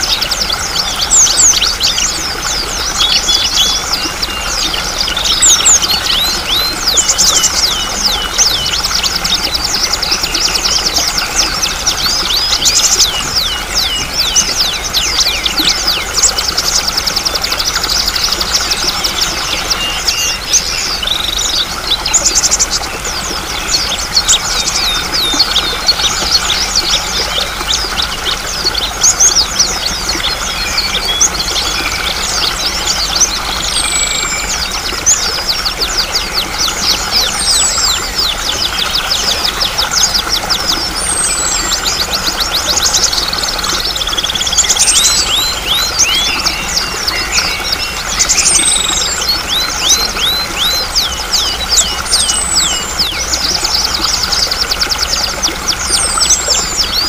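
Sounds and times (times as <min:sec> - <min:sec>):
flowing water: 0:00.0 - 0:57.0
songbirds chirping and trilling: 0:00.0 - 0:57.0.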